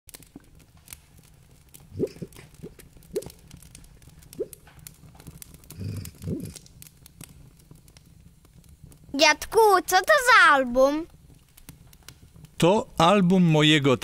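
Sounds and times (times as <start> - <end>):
wood fire crackling: 0.1 - 14.0
low rumbling: 5.6 - 6.7.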